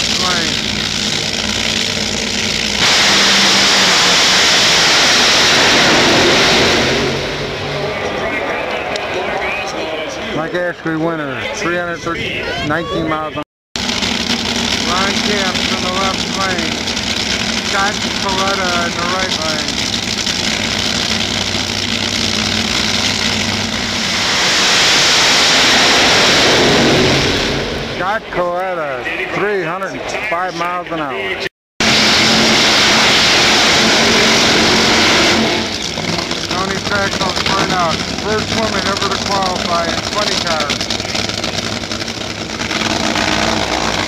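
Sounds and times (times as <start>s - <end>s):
drag racing engines roaring: 0.0s - 44.0s.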